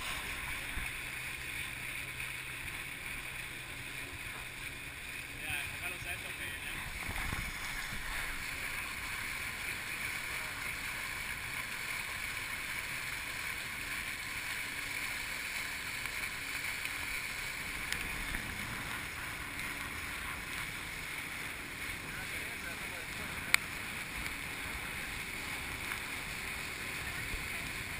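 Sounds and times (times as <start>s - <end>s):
river water rushing: 0.0s - 27.9s
wind on microphone: 6.7s - 8.5s.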